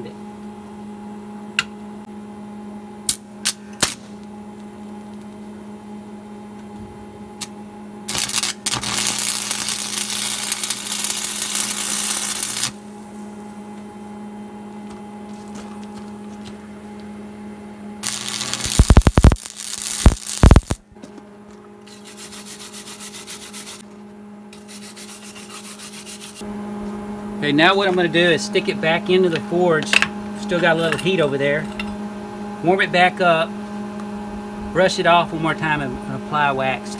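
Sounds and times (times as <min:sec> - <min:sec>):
electrical hum: 0:00.0 - 0:36.9
welding rod ticks: 0:08.1 - 0:12.8, 0:18.0 - 0:20.8
welding arc crackle and sizzle: 0:08.1 - 0:13.2, 0:18.0 - 0:20.8, 0:21.9 - 0:23.8.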